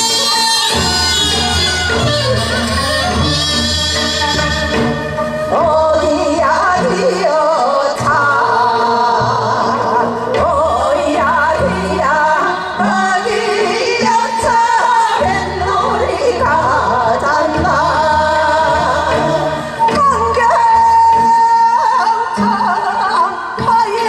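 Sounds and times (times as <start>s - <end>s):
amplified accompaniment with bass: 0.0s - 23.7s
women singing folk song: 5.5s - 24.0s.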